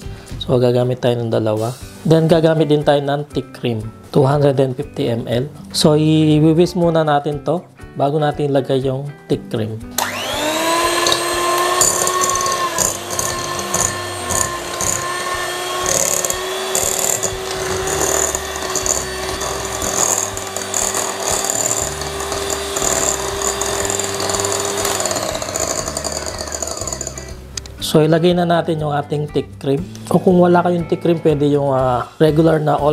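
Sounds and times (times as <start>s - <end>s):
electric hand mixer whining: 10.0s - 27.5s.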